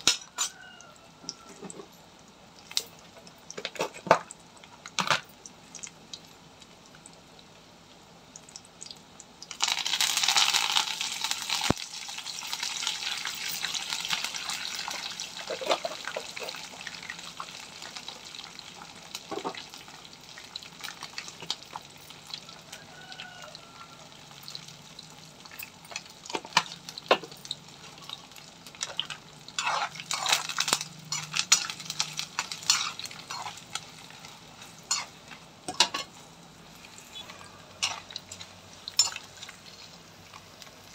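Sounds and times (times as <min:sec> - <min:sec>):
hot oil sizzling: 0:00.0 - 0:40.9
spoon clinking and scraping pan: 0:28.8 - 0:33.9, 0:34.6 - 0:36.2, 0:37.0 - 0:39.5.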